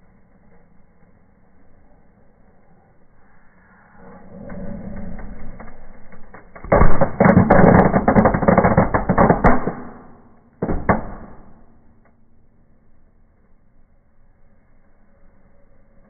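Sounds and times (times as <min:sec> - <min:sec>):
loud crackling pops: 0:05.6 - 0:12.2
fireworks fizzing and crackling: 0:06.6 - 0:10.1.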